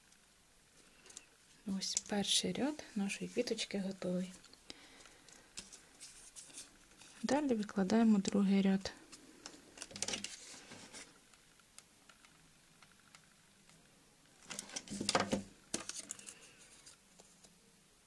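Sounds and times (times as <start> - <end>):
soft rustles: 0.7 - 7.4, 8.9 - 11.2
small clicks: 11.3 - 13.9.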